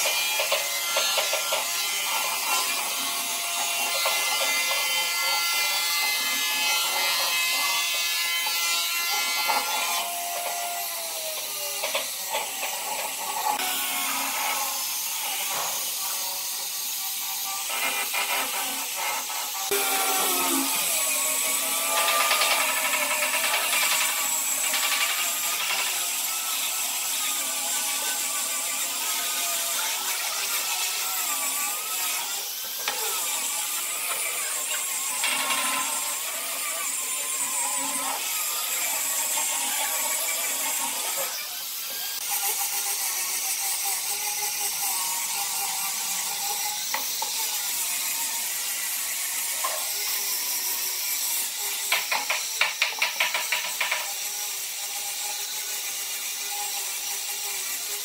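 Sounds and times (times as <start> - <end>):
power tool cutting wood: 0.0 - 58.0.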